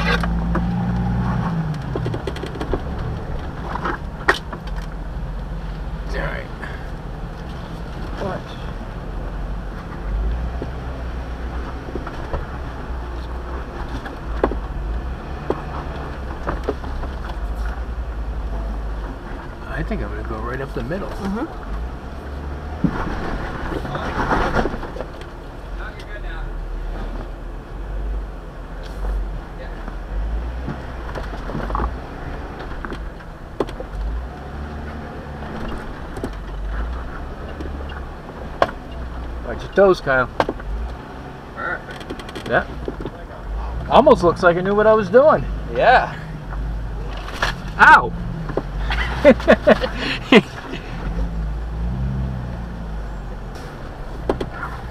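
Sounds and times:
engine low rumble: 0.0s - 54.9s
sharp clicks and knocks: 0.2s - 5.5s, 35.4s - 41.0s, 41.9s - 43.2s, 54.1s - 54.6s.

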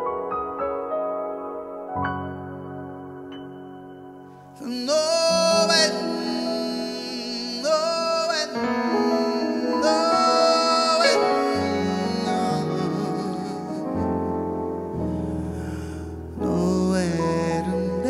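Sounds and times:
keyboard sustained chords: 0.0s - 18.0s
person singing long notes: 4.6s - 18.0s.

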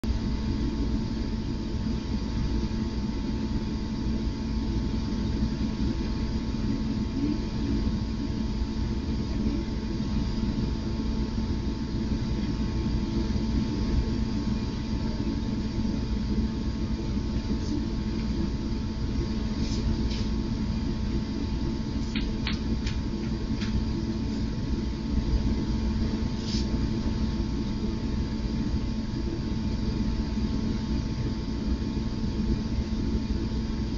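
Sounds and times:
steady hum and hiss: 0.0s - 33.9s.

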